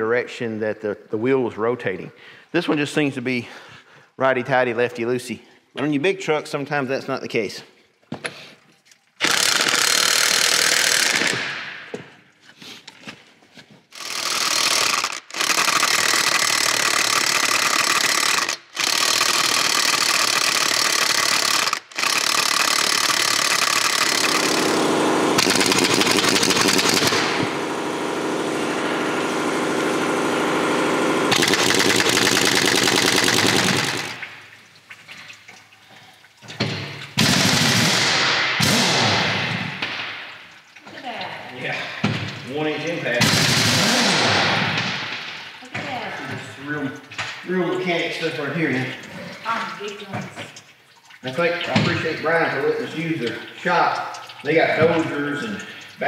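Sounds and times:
impact wrench hammering: 9.2s - 12.2s, 14.0s - 27.7s, 30.6s - 34.3s.

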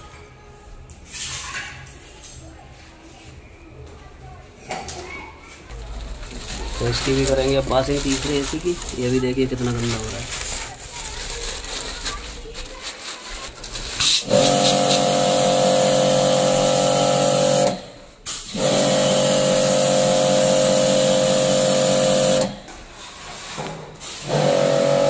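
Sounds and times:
water jet hissing: 14.0s - 22.6s
pressure washer pump whining: 14.0s - 22.7s, 24.0s - 25.0s.

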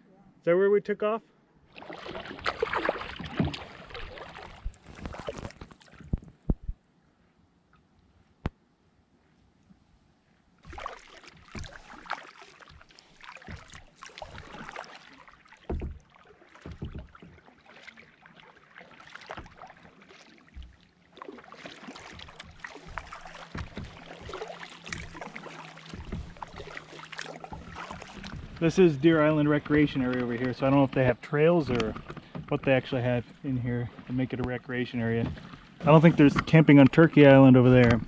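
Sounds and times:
paddle splashing in water: 1.7s - 6.3s, 10.6s - 38.0s
water dripping: 18.8s - 29.3s.

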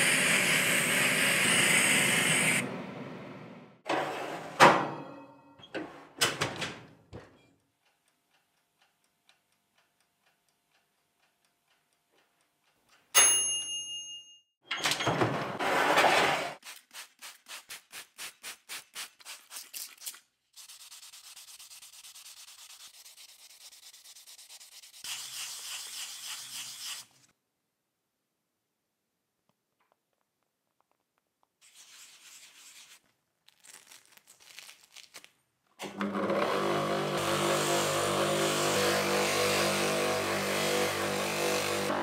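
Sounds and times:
high hiss: 0.0s - 2.6s
loud metal scrape: 15.5s - 16.6s.

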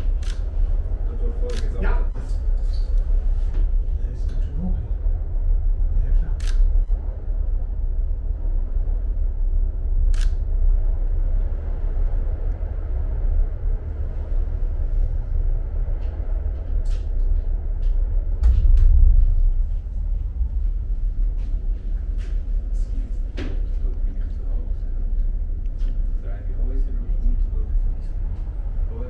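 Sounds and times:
cable car cabin rumble: 0.0s - 29.0s.

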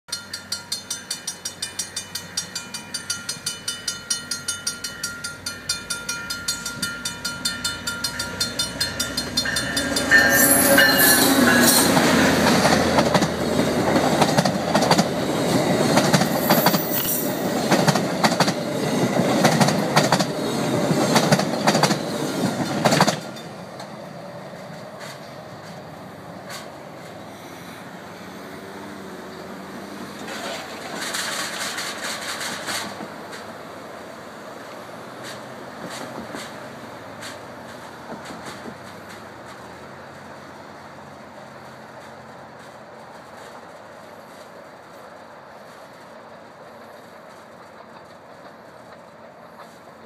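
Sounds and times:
level-crossing warning bell: 0.1s - 12.9s
diesel train passing: 0.1s - 50.0s
train wheels clattering over rails: 0.2s - 27.3s, 28.4s - 33.9s, 34.5s - 50.0s.

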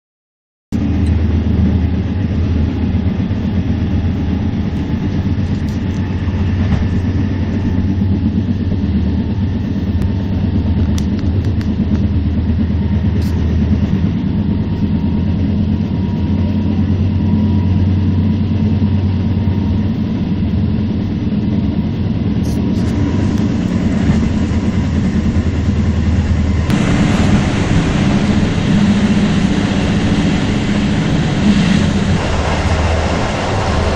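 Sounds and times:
train rumbling in motion: 0.7s - 33.9s.

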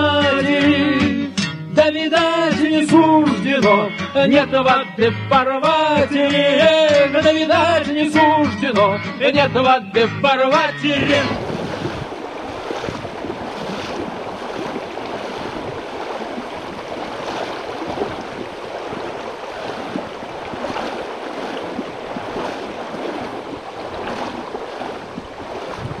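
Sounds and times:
small water splashes: 10.9s - 26.0s
river water rushing over stones: 11.0s - 26.0s.

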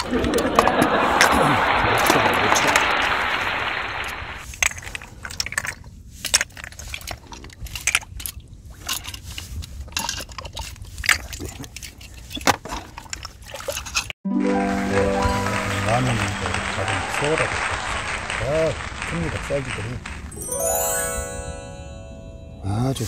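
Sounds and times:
water gushing over rocks: 1.8s - 4.4s.

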